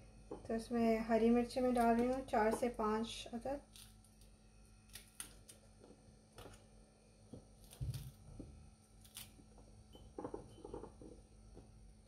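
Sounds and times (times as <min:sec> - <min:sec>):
knife cutting chillies: 0:08.9 - 0:09.4.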